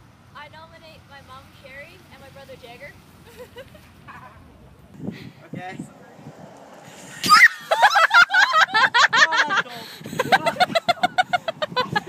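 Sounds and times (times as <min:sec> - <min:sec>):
high-pitched yelps: 0:07.1 - 0:08.5
person laughing: 0:07.6 - 0:12.0.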